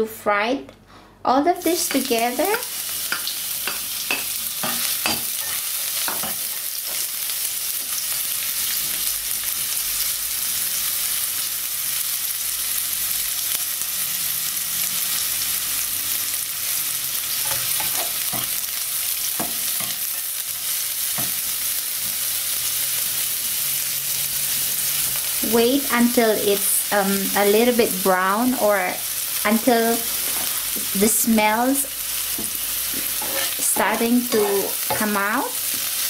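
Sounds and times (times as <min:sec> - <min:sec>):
vegetables sizzling in hot oil: 0:01.6 - 0:36.0
spatula scraping and tapping pan: 0:03.0 - 0:07.1, 0:17.4 - 0:18.6, 0:32.3 - 0:35.9.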